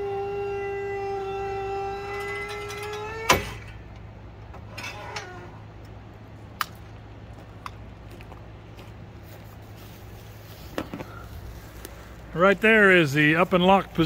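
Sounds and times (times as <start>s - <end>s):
hydraulic pump motor whining: 0.0s - 5.8s
lift clunk: 2.0s - 5.6s.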